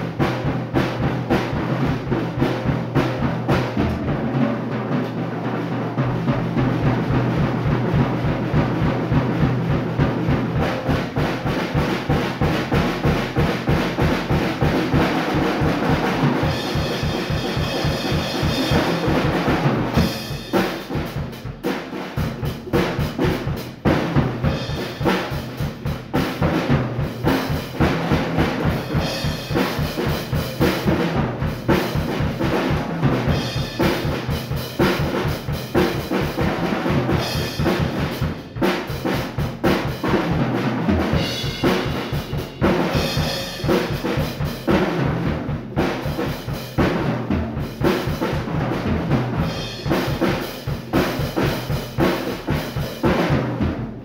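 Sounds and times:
drum kit played freestyle: 0.0s - 54.0s.

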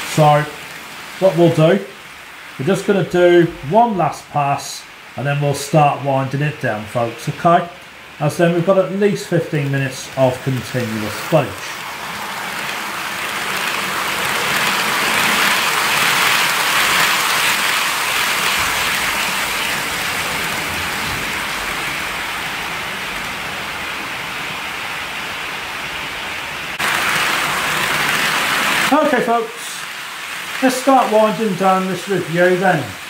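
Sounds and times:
model train wheels rattling on rails: 8.6s - 22.7s, 26.8s - 33.0s.

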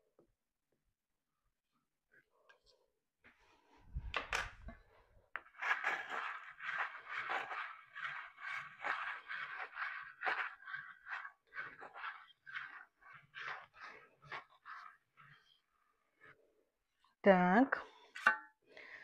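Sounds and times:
scraper scraping frosting: 5.4s - 16.5s.

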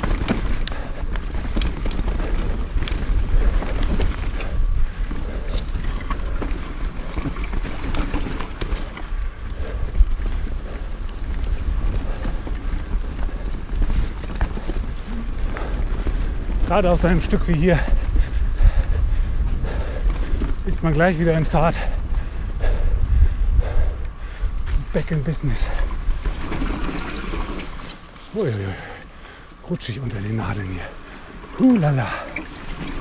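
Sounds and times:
bike knocks and rattles: 0.0s - 16.8s
bike tyres rolling on dirt: 0.0s - 33.0s
wind buffeting microphone: 0.0s - 33.0s.

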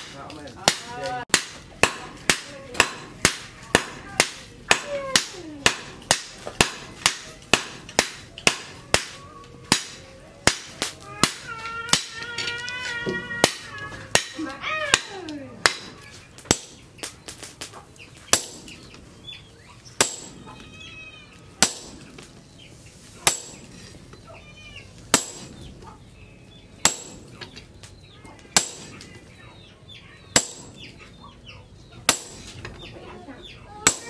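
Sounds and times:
sledgehammer striking metal: 0.0s - 17.0s, 18.3s - 18.9s, 20.0s - 20.6s, 21.6s - 22.1s, 23.2s - 23.8s, 25.1s - 25.7s, 26.8s - 27.6s, 28.6s - 29.3s, 30.4s - 31.3s, 32.1s - 32.9s.

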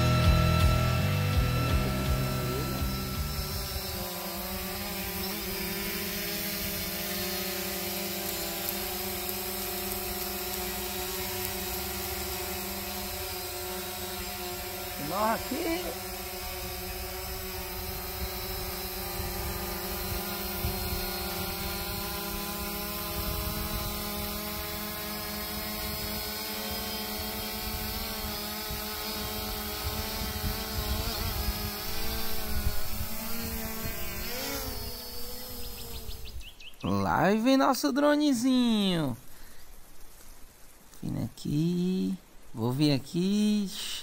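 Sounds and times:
drone propellers humming: 0.0s - 36.5s
low wind rumble: 16.5s - 26.3s, 27.2s - 36.6s.

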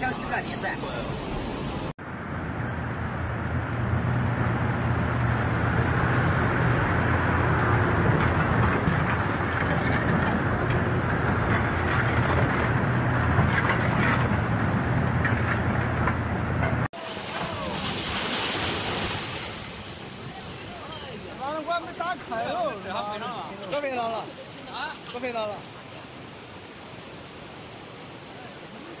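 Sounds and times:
floodwater rushing: 0.0s - 29.0s.

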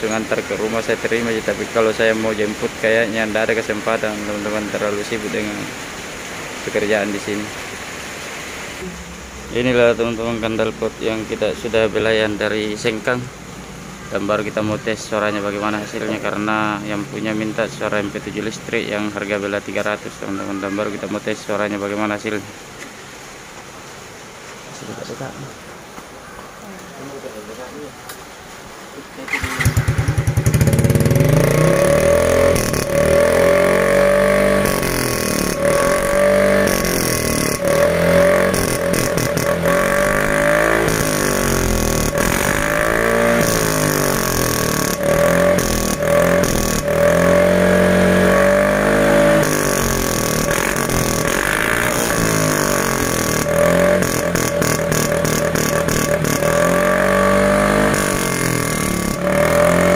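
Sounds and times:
scooter engine revving: 29.3s - 59.9s.

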